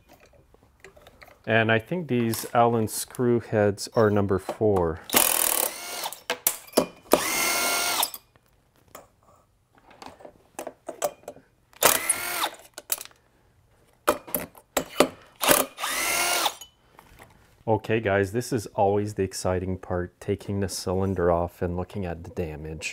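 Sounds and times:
cordless power driver whirring: 0:07.2 - 0:08.0, 0:11.8 - 0:12.6, 0:15.4 - 0:16.6.

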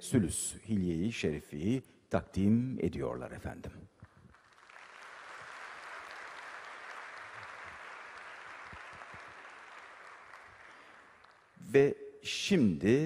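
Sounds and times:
audience clapping: 0:04.0 - 0:11.6.

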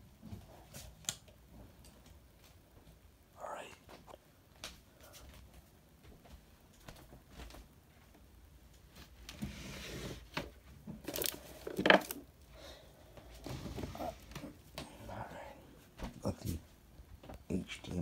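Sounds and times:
rustling and clinks on desk: 0:11.0 - 0:12.2.

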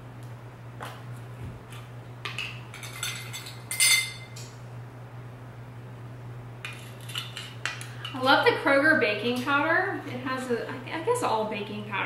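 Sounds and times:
metal spoons clinking: 0:02.8 - 0:04.4
short metallic ring: 0:03.7 - 0:04.3.

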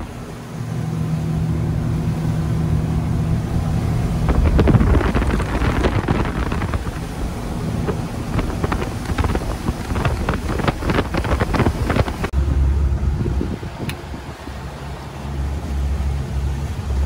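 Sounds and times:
boat engine hum: 0:00.0 - 0:17.0
wind buffeting microphone: 0:02.8 - 0:14.8
knocks and splashes: 0:03.3 - 0:12.3.

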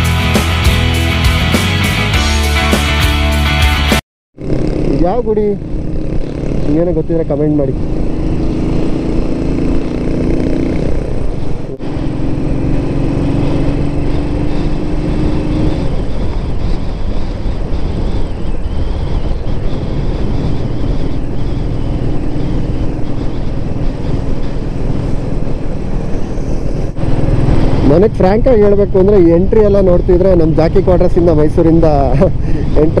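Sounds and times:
motorcycle engine running: 0:04.4 - 0:33.0
wind rush on microphone: 0:04.4 - 0:33.0.

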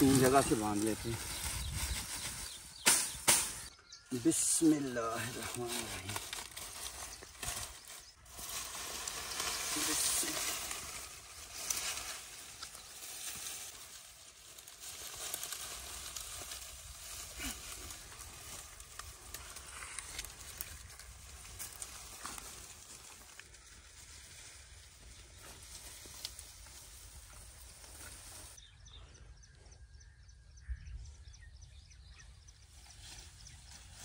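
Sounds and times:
dry reeds rustling and crackling: 0:00.0 - 0:28.6, 0:32.6 - 0:34.0
rustling through grass: 0:00.0 - 0:28.6, 0:32.6 - 0:34.0.

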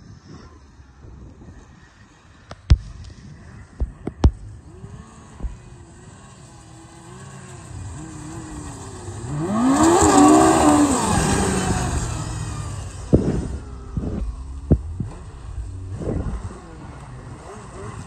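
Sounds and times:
snowmobile passing by: 0:03.4 - 0:18.0
sharp thumps: 0:12.9 - 0:16.8.

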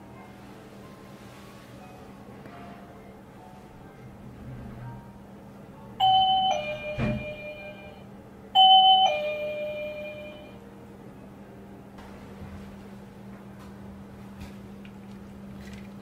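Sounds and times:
two-note doorbell chime: 0:06.0 - 0:10.6.

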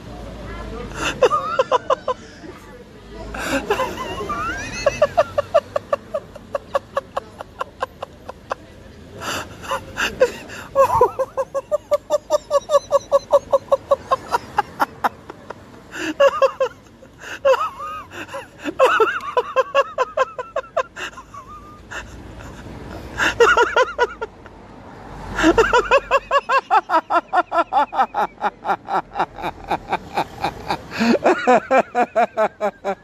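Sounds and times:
stifled wheezing laughter: 0:09.2 - 0:24.4, 0:25.3 - 0:33.0.

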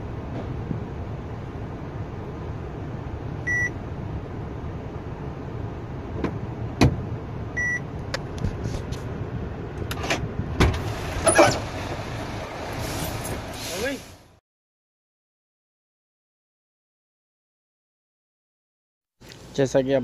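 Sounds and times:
dashboard warning beep: 0:03.4 - 0:03.8, 0:07.6 - 0:07.9.

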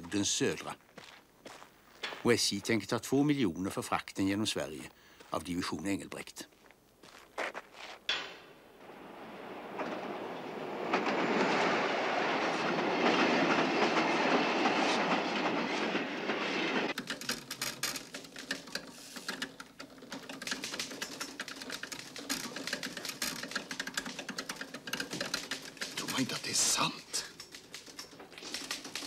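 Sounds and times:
electric train rumbling past: 0:08.6 - 0:17.0
typewriter keys clicking: 0:17.0 - 0:29.0.

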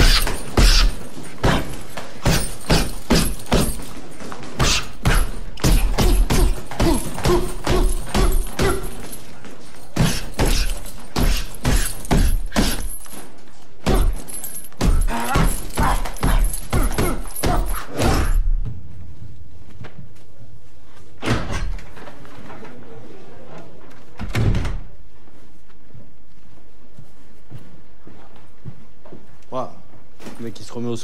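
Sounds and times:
boxing glove punches: 0:00.0 - 0:09.2, 0:09.9 - 0:12.9.

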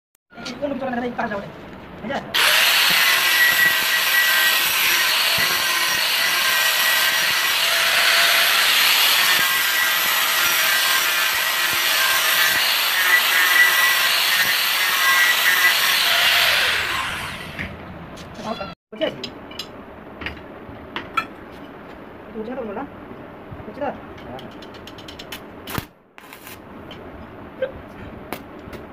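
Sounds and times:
angle grinder cutting metal: 0:02.4 - 0:17.8.

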